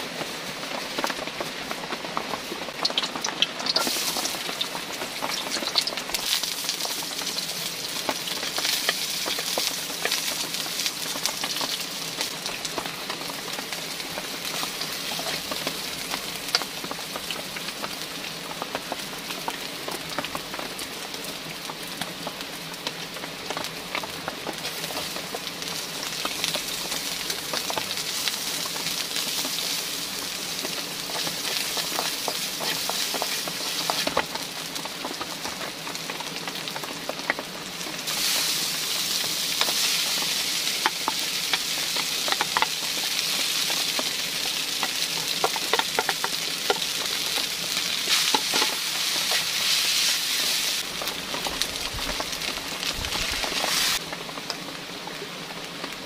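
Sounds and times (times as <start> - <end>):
noodles sizzling in metal pan: 0.0 - 56.0
wooden utensil scraping pan: 48.0 - 50.8.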